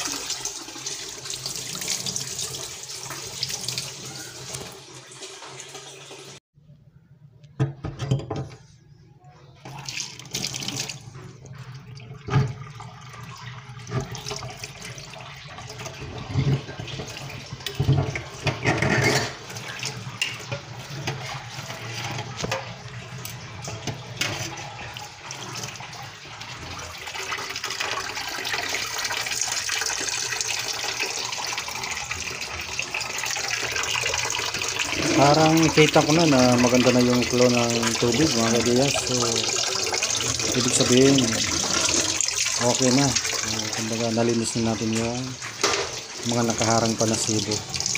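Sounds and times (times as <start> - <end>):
water pouring into metal pot: 9.7 - 47.9.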